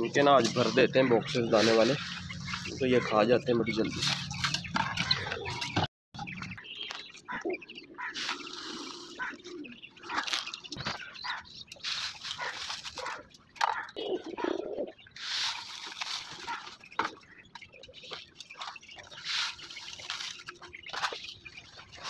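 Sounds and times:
grain filling feed boxes: 0.0 - 5.8, 8.0 - 13.2, 15.2 - 22.0
animal calls: 6.6 - 22.0.

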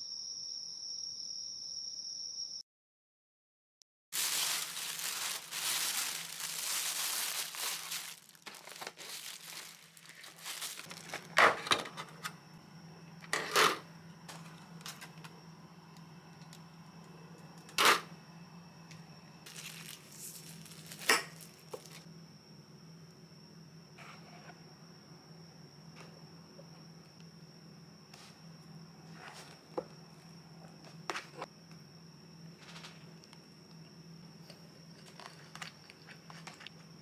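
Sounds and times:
plastic packaging crinkling and tearing: 4.2 - 11.4, 19.5 - 22.0
steady low hum: 4.2 - 37.0.

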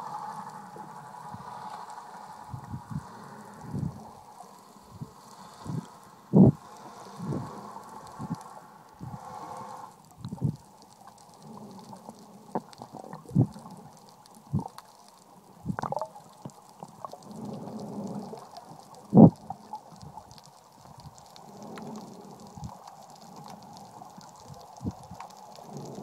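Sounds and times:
muffled underwater water wash: 0.0 - 26.0
low underwater knocks and gurgles: 15.6 - 20.2.

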